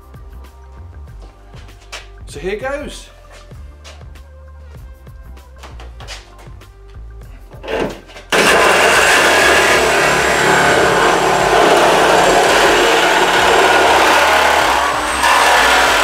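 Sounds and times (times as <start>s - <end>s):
reciprocating saw cutting steel: 7.7s - 16.0s.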